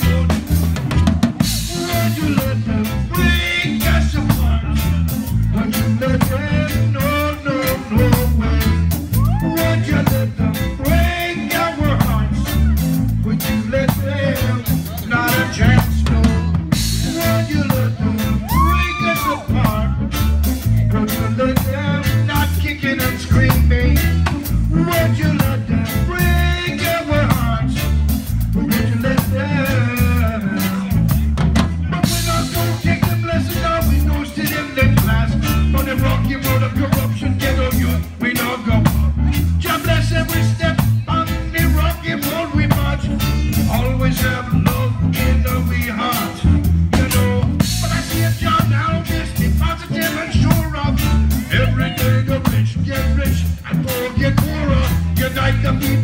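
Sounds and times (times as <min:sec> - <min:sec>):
deep bass line: 0:00.0 - 0:56.0
drum kit beat: 0:00.0 - 0:56.0
electric guitar: 0:00.0 - 0:56.0
keyboard: 0:00.0 - 0:56.0.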